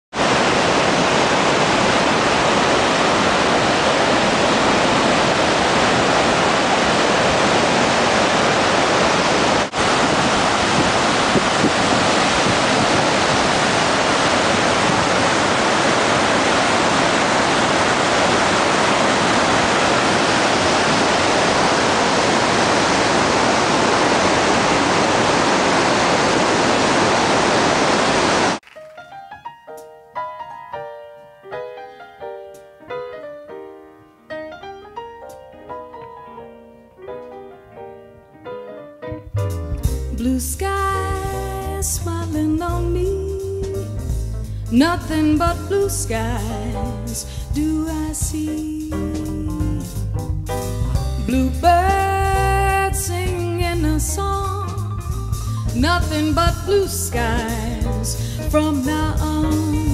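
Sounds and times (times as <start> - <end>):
waterfall rushing: 0.2 - 28.6.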